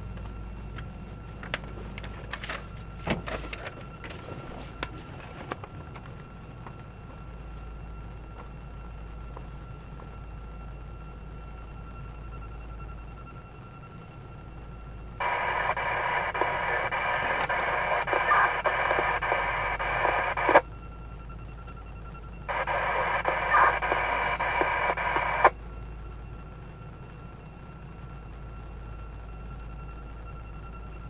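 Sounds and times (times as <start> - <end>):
hissy radio transmissions: 0.1 - 8.6, 15.2 - 20.7, 22.4 - 25.6
radio squelch click: 15.2 - 20.6, 22.5 - 25.6.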